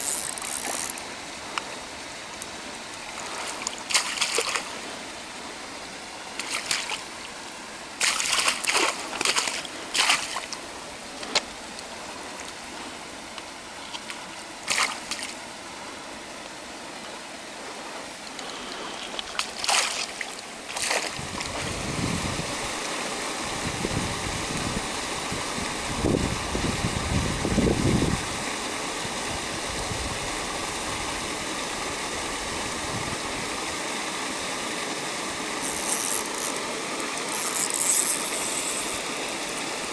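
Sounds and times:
fish splashing in water: 0:03.2 - 0:04.8, 0:06.4 - 0:07.1, 0:08.0 - 0:10.6, 0:14.0 - 0:15.4, 0:18.4 - 0:21.7
steady rushing noise: 0:21.1 - 0:35.6.

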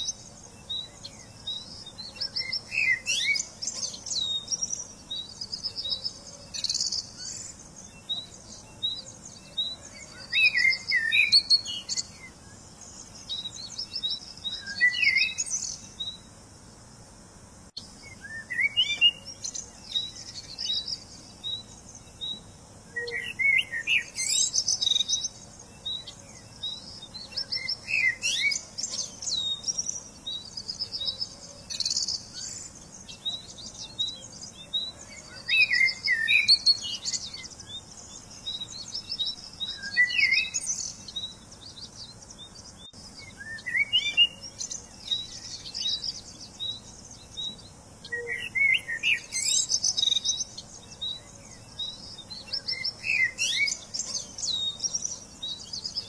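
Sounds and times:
birds chirping and singing: 0:00.0 - 0:16.4, 0:17.8 - 0:56.0.

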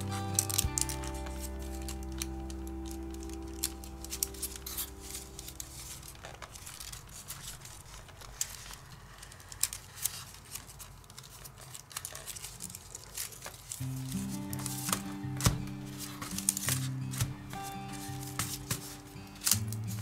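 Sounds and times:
background music: 0:00.0 - 0:07.0, 0:13.8 - 0:20.0
paper rustling and crinkling: 0:00.0 - 0:20.0
paper clicks and taps: 0:00.1 - 0:20.0.

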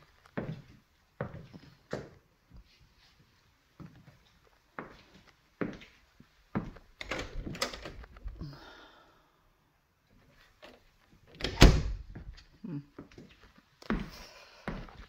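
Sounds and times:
closet door opening: 0:07.0 - 0:08.4, 0:10.6 - 0:12.5
door shutting with thud: 0:11.4 - 0:12.2.

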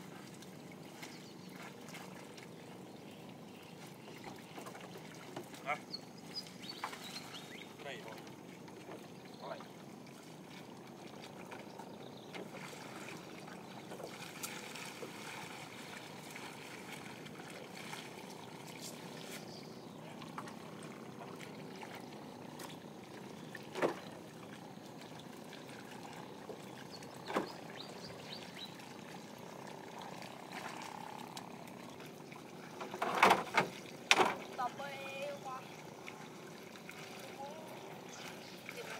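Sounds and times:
water trickling and lapping: 0:00.0 - 0:38.9.

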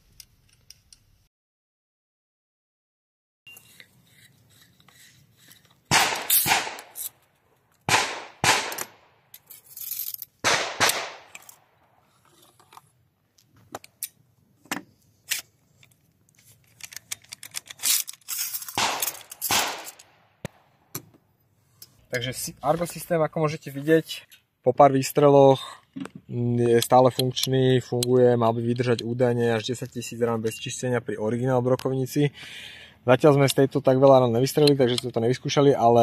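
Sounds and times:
metal gun parts clacking: 0:08.7 - 0:10.4, 0:11.3 - 0:12.9, 0:13.7 - 0:20.1.

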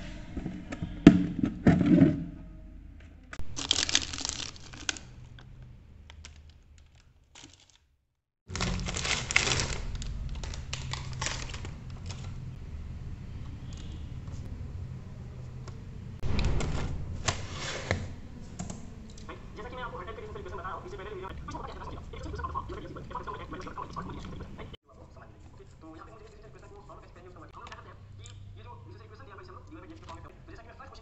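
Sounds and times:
plastic wrappers crinkling: 0:03.4 - 0:07.9, 0:08.5 - 0:12.6.

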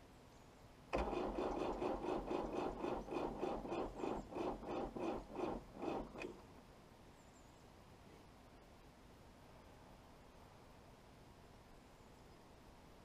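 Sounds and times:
diesel engine cranking by starter: 0:00.9 - 0:06.5.

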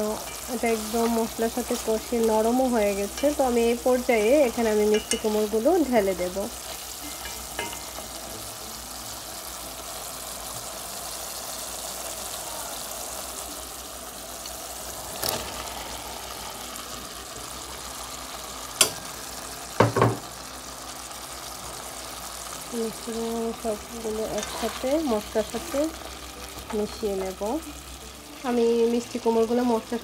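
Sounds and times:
food sizzling in a pot: 0:00.0 - 0:30.0
knock: 0:19.8 - 0:20.2
spatula stirring: 0:24.0 - 0:27.4.

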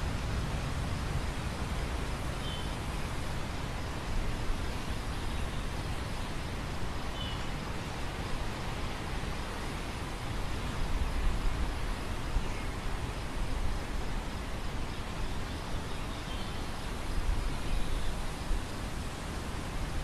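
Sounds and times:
wind gusts rumbling on microphone: 0:00.0 - 0:14.8.

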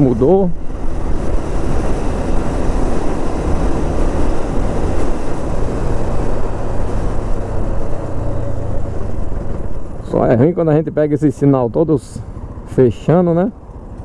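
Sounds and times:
wind noise over microphone: 0:00.0 - 0:10.0
motorcycle engine hum: 0:00.0 - 0:14.0.

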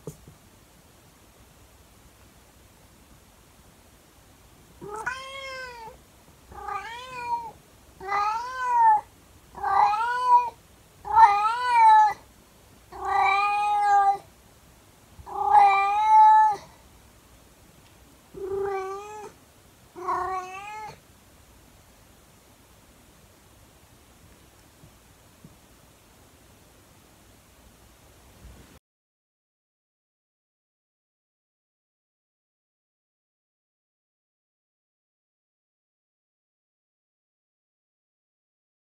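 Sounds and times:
cat howling meows: 0:04.8 - 0:12.2, 0:13.0 - 0:14.2, 0:15.3 - 0:16.7, 0:18.4 - 0:19.4, 0:20.0 - 0:21.0.

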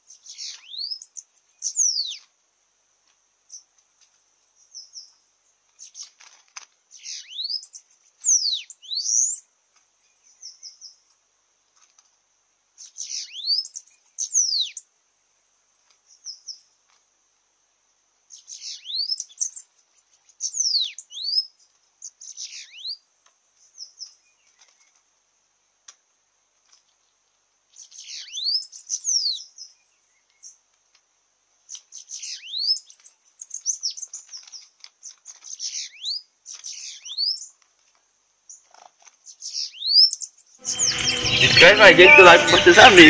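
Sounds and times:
birds singing high buzzy songs: 0:00.0 - 0:02.3, 0:03.4 - 0:06.2, 0:06.9 - 0:11.2, 0:12.8 - 0:14.9, 0:16.0 - 0:16.8, 0:18.3 - 0:25.0, 0:26.8 - 0:30.7, 0:31.6 - 0:37.6, 0:38.5 - 0:43.0.

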